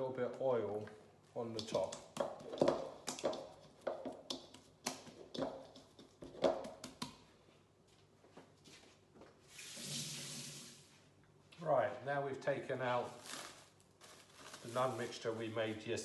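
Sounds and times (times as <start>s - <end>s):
hand slapping wet dough: 1.6s - 7.3s.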